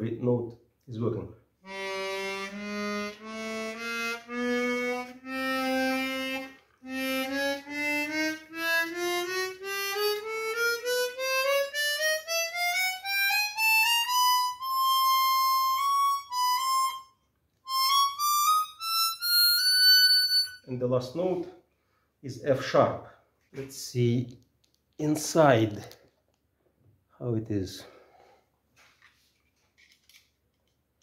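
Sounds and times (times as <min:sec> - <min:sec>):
harmonica playing a scale: 0:01.6 - 0:20.7.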